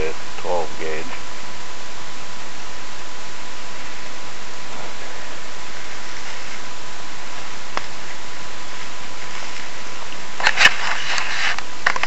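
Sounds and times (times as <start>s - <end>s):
steady hiss: 0.0s - 12.0s
crackling handling noise: 5.8s - 12.0s.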